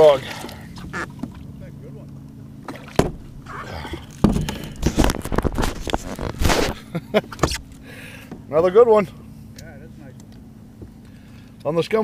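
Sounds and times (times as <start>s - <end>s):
knocks and thumps on kayak hull: 2.7s - 3.5s, 4.2s - 6.7s.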